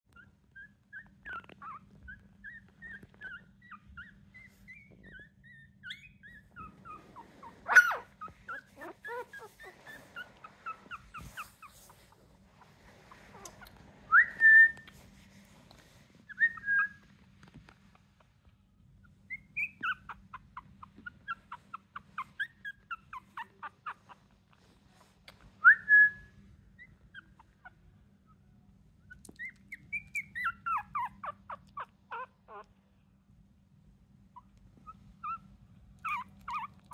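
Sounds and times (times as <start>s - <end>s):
puppies squealing: 0.1s - 14.7s, 19.3s - 24.2s, 29.4s - 32.7s, 34.4s - 35.4s, 36.0s - 36.9s
puppies peeping: 0.1s - 15.6s, 16.2s - 28.4s, 29.0s - 32.8s, 34.3s - 36.9s.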